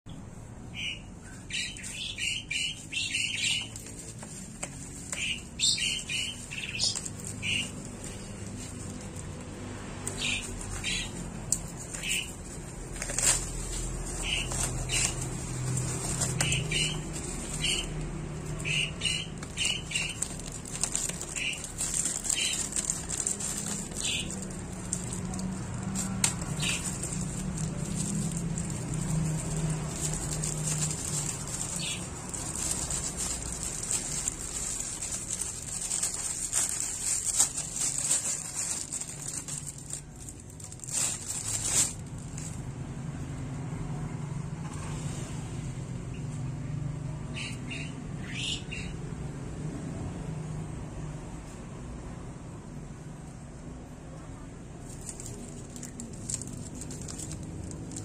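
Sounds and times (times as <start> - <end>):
plastic packaging crinkling: 1.6 - 42.8, 54.8 - 58.0.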